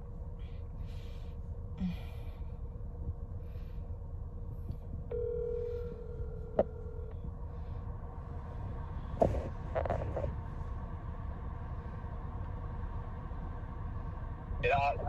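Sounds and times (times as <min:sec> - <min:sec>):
low steady hum: 0:00.0 - 0:15.0
phone ringback tone: 0:05.1 - 0:07.1.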